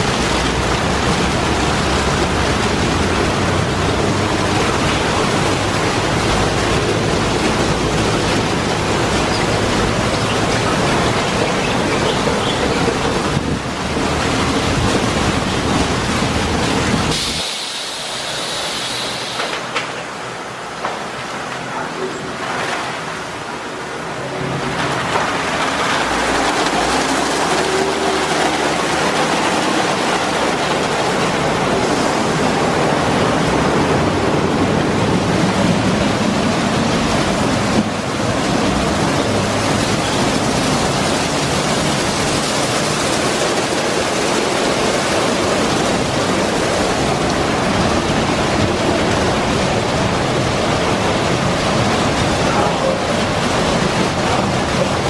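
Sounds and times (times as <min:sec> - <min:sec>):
spraying water: 0:00.0 - 0:21.3, 0:22.4 - 0:55.0
car wash brushes spinning: 0:24.7 - 0:32.6.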